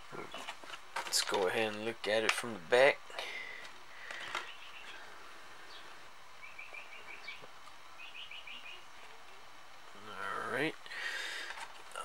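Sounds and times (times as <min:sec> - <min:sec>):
low background noise: 0:00.0 - 0:12.0
faint bird chirping: 0:04.2 - 0:09.0.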